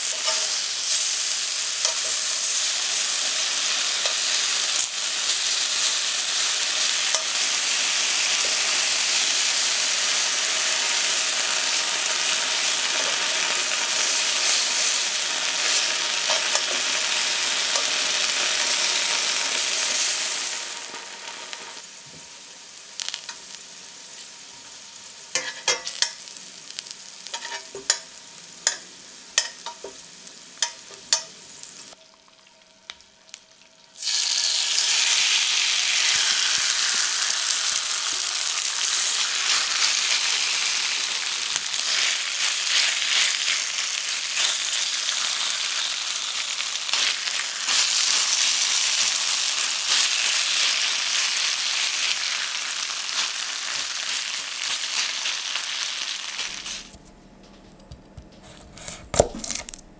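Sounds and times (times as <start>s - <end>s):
potatoes frying in oil: 0.0s - 57.0s
loud dense sizzle: 0.0s - 57.9s
tongs clicking against pan: 27.3s - 28.8s, 30.6s - 31.3s.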